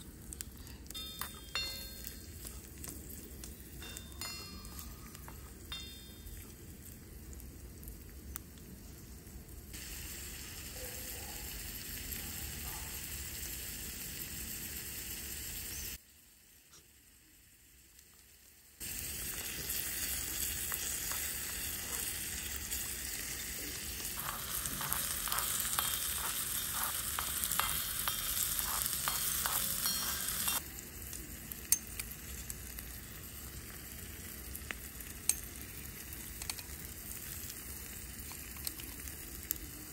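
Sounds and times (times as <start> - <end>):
onions and tomatoes sizzling: 0.0 - 39.9
spatula scraping a pan: 24.1 - 30.6.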